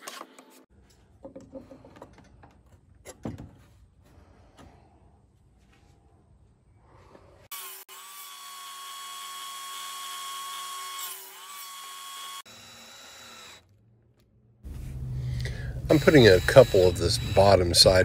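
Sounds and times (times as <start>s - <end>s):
table saw whining: 7.5s - 13.7s, 15.8s - 18.0s.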